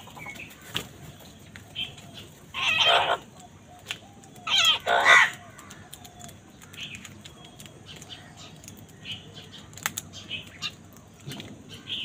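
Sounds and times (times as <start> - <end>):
beaks pecking grain: 0.0 - 12.0
crows cawing: 2.5 - 7.0.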